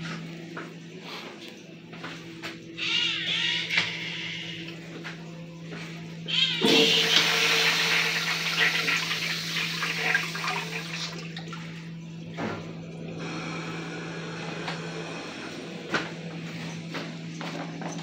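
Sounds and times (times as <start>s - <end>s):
urinal flushing: 6.3s - 18.0s.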